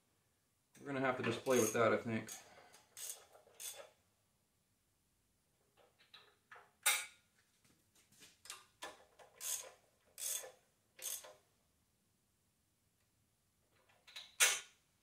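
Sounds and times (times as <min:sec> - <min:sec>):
socket wrench ratcheting: 0:01.4 - 0:03.9, 0:08.8 - 0:11.4.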